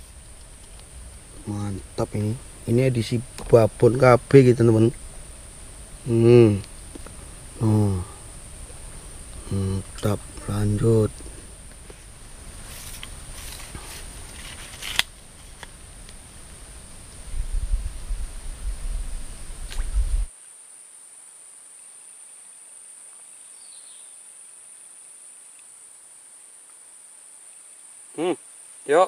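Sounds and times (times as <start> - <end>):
insect chorus buzzing: 0.0 - 29.0
low rumble: 16.3 - 20.3.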